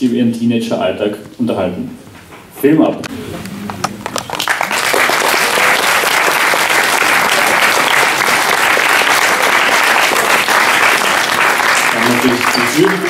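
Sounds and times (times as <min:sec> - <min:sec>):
audience applauding: 0:03.9 - 0:13.0.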